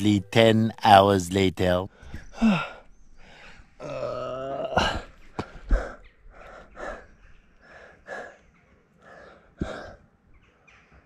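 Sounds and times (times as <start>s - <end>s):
person breathing hard: 1.9s - 3.8s, 4.8s - 10.0s.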